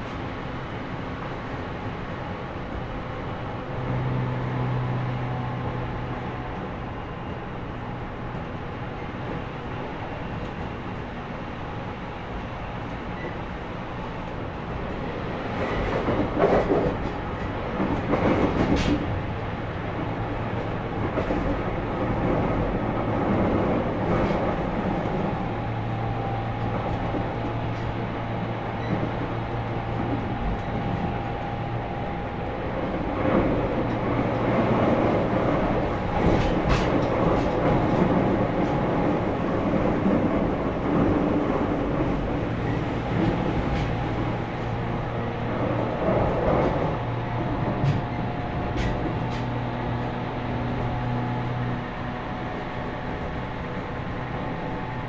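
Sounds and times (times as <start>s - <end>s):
train wheels rumbling on rail: 0.0s - 55.0s
sharp knocks of train: 15.5s - 19.4s, 35.0s - 44.4s, 46.0s - 49.6s.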